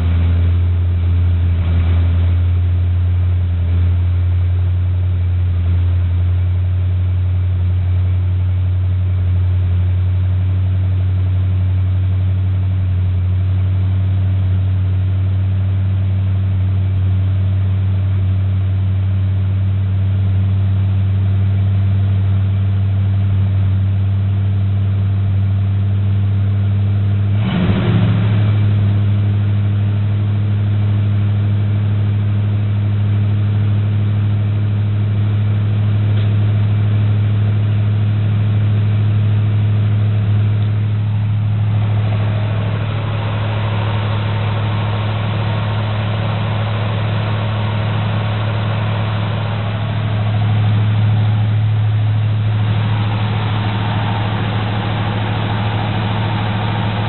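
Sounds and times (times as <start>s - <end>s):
truck engine idling: 0.0s - 57.0s.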